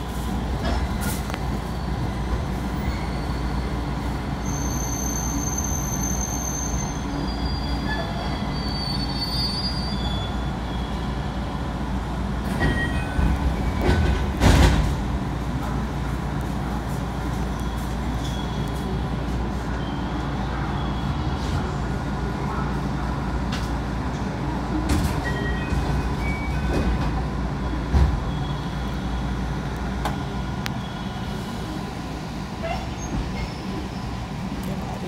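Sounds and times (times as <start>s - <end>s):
train running rumble: 0.0s - 9.1s, 9.9s - 35.0s
brakes and wheels squealing: 0.2s - 11.4s
train knocks: 12.4s - 15.2s, 24.8s - 28.3s.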